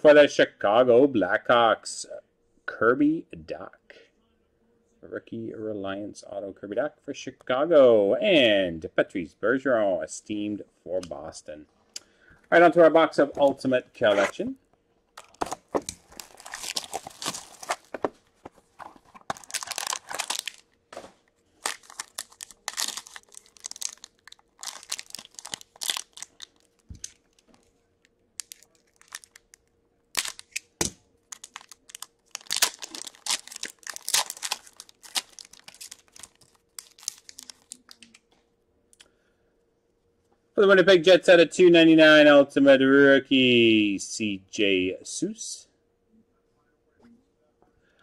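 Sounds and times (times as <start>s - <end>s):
faint steady hum: 0.0s - 48.0s
plastic wrap and foil crinkling: 15.2s - 27.7s, 28.4s - 38.2s.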